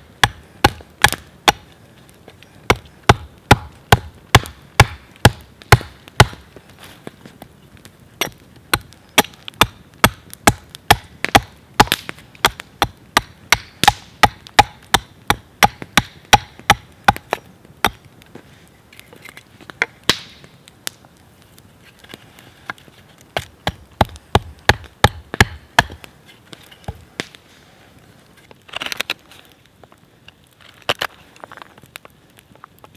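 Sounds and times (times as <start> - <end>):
axe chopping wood: 0.2 - 1.6, 2.7 - 6.4, 8.2 - 18.0, 23.4 - 26.0.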